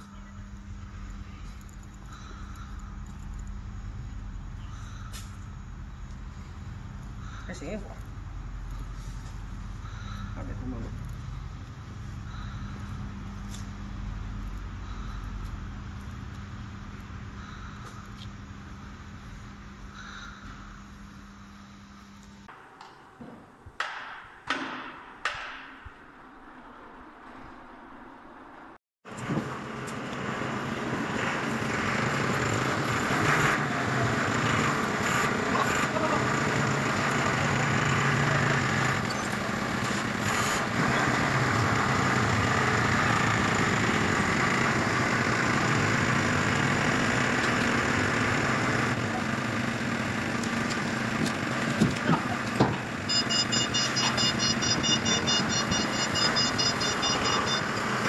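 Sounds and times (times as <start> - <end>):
forklift engine running: 0.0 - 22.5, 29.1 - 58.0
fast electronic beeping: 53.1 - 57.8.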